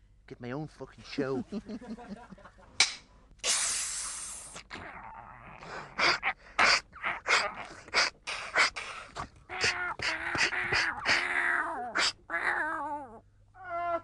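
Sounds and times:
person hissing breathily: 0:03.4 - 0:04.6, 0:05.6 - 0:09.2
person gasping or snorting: 0:05.6 - 0:11.2.

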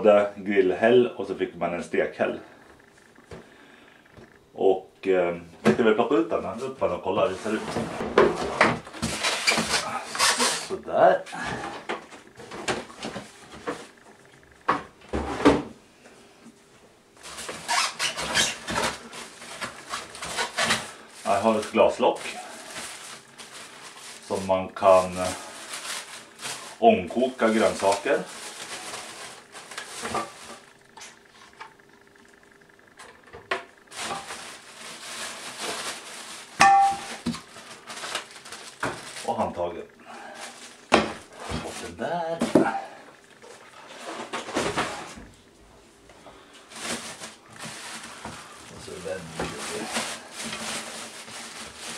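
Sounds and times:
packaging rustling: 0:07.2 - 0:10.8, 0:17.2 - 0:31.6, 0:33.8 - 0:42.6, 0:46.4 - 0:51.9.

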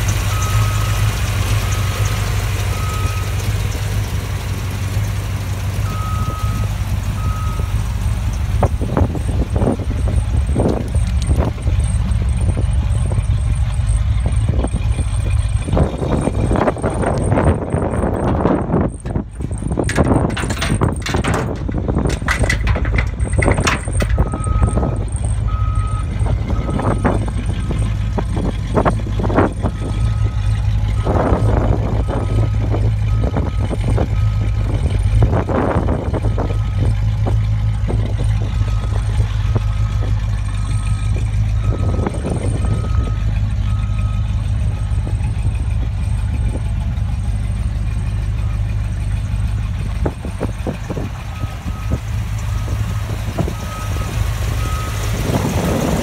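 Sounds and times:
pickup engine idling: 0:00.0 - 0:56.0
sharp knocks and handling: 0:18.1 - 0:24.4.

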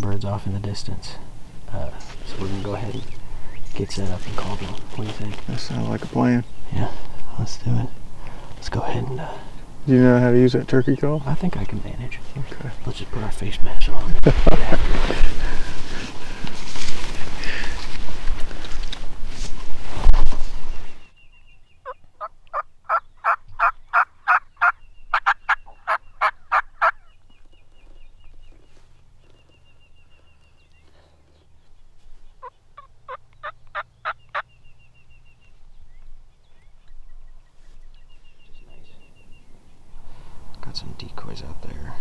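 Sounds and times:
turkey call yelps: 0:21.8 - 0:27.2, 0:32.4 - 0:34.5.

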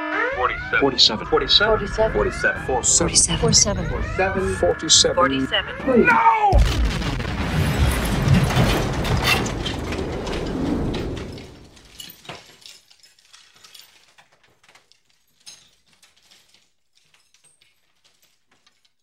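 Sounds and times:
loud rumble: 0:00.0 - 0:12.0.

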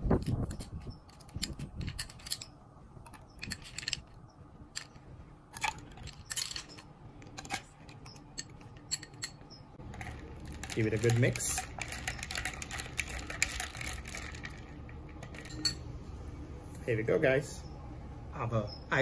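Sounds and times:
ice and spoon clinking on glass: 0:08.4 - 0:15.8.

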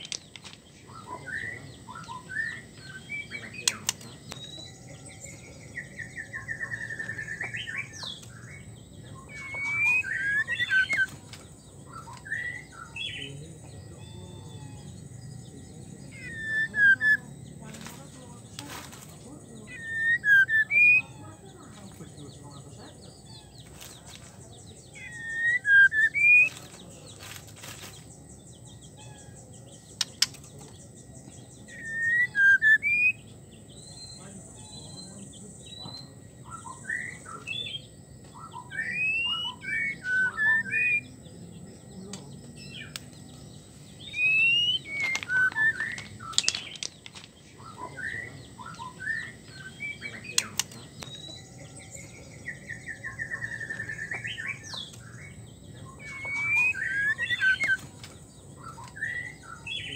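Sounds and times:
sharp clicks: 0:03.6 - 0:04.5, 0:29.9 - 0:30.8
bird whistled call notes: 0:09.2 - 0:11.1, 0:31.7 - 0:33.3, 0:38.4 - 0:41.1, 0:44.0 - 0:46.9, 0:47.6 - 0:57.9.

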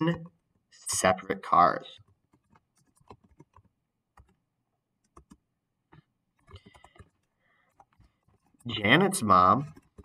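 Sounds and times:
faint typing on a keyboard: 0:00.1 - 0:10.0.

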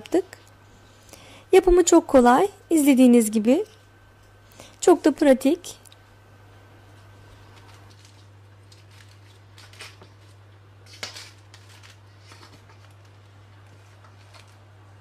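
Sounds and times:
pastry layers crunching: 0:06.9 - 0:15.0.

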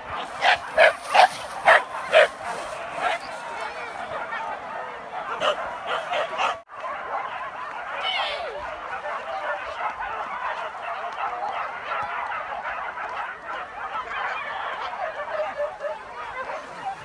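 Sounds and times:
dogs barking and yelping: 0:00.0 - 0:17.0.

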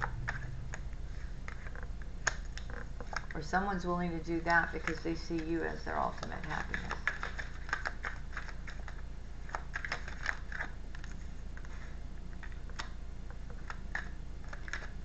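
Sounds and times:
cards being shuffled: 0:04.4 - 0:15.0.

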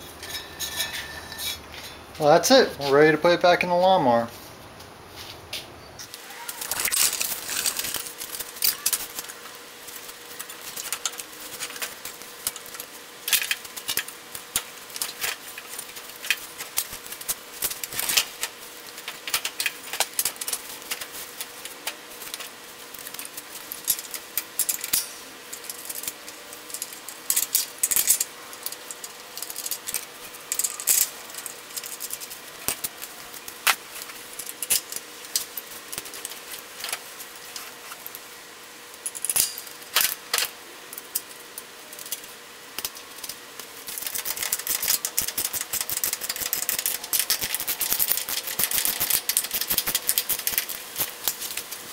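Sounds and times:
metal parts clinking and rattling: 0:00.1 - 0:02.0, 0:06.6 - 0:09.3, 0:22.2 - 0:32.9, 0:39.0 - 0:40.5, 0:43.9 - 0:51.8.

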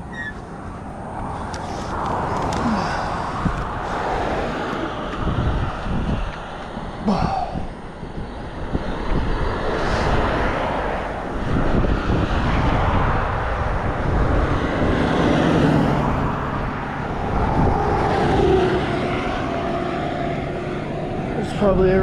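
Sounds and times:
truck engine hum: 0:00.0 - 0:12.2, 0:13.4 - 0:22.0
car passing: 0:00.0 - 0:22.0.

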